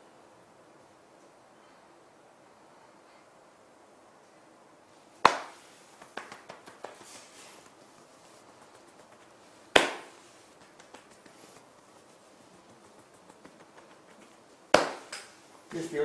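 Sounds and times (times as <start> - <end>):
hand slapping a back: 5.2 - 7.8, 8.5 - 15.8.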